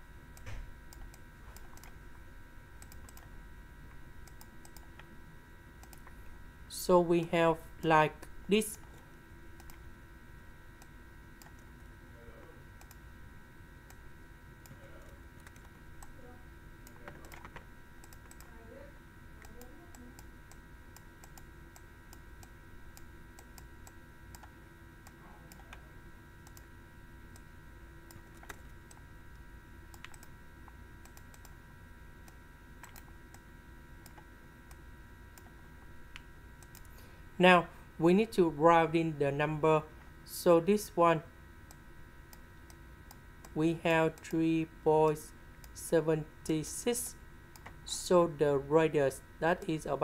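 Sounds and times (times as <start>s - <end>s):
electrical hum: 0.0s - 50.0s.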